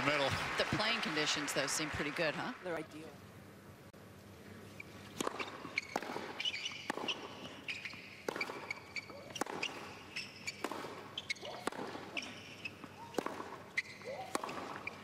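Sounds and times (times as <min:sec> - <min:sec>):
shoes squeaking on court: 0:04.6 - 0:15.0
racket hitting tennis ball: 0:05.1 - 0:15.0
ball bouncing: 0:05.2 - 0:15.0.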